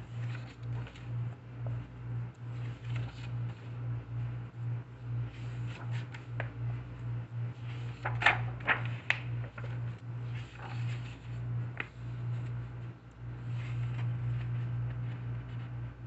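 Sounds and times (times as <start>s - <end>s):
low hum: 0.0s - 16.0s
book pages turning: 0.1s - 1.8s, 2.5s - 3.6s, 5.3s - 6.8s, 7.6s - 16.0s.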